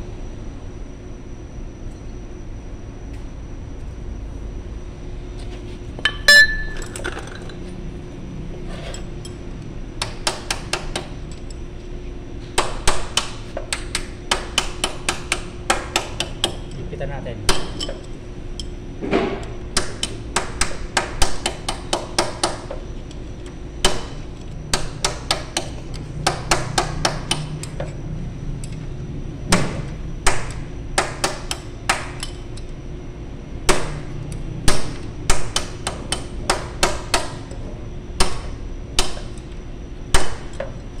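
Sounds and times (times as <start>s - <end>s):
hammer striking metal punch: 6.0s - 7.0s, 17.5s - 18.0s, 23.8s - 27.6s, 33.7s - 37.5s, 38.2s - 39.4s, 40.1s - 40.7s.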